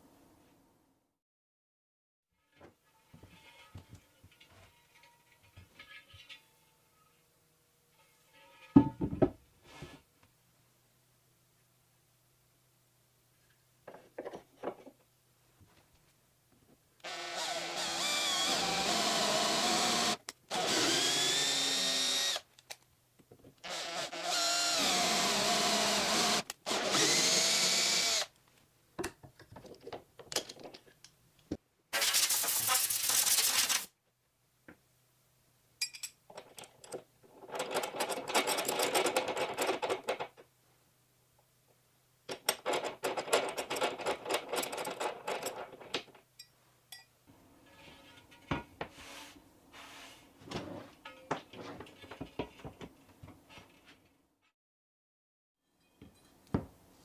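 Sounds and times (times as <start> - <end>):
cordless drill whine: 17.1 - 22.4, 23.7 - 28.3.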